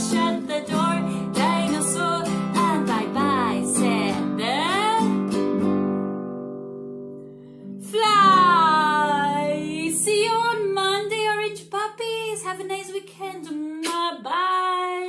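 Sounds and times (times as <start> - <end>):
woman singing: 0.0 - 5.2, 7.8 - 15.0
acoustic guitar chord ringing: 0.0 - 10.8.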